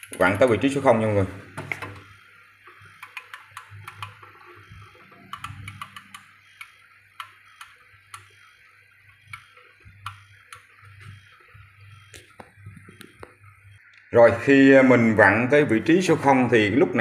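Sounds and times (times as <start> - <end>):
timer gears clicking: 2.8 - 8.5, 9.1 - 13.1.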